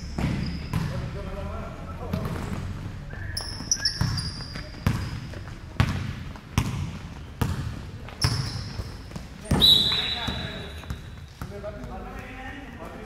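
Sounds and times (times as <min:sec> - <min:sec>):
basketball bouncing on wooden floor: 0:00.0 - 0:01.0, 0:03.9 - 0:12.0
sneaker squeaks: 0:00.0 - 0:01.2, 0:02.2 - 0:11.9.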